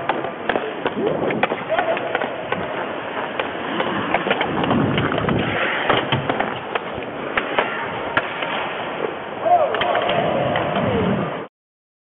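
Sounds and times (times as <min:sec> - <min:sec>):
skate blades scraping on ice: 0:00.0 - 0:09.2
hockey sticks and puck clacking: 0:00.0 - 0:10.9.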